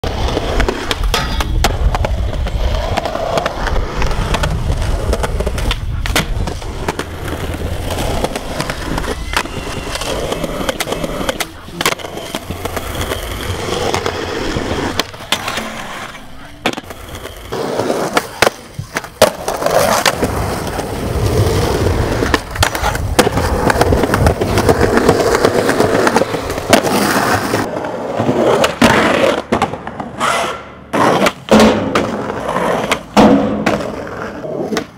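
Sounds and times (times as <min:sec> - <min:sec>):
skateboard wheels rolling on concrete: 0:00.0 - 0:34.9
skateboard tail pops and landings: 0:00.4 - 0:07.2, 0:22.2 - 0:27.0, 0:28.2 - 0:34.9.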